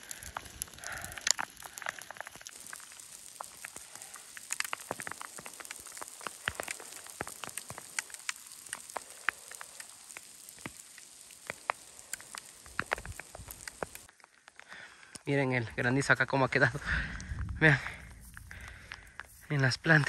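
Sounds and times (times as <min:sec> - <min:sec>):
hail striking: 0:00.0 - 0:15.2, 0:15.9 - 0:20.0.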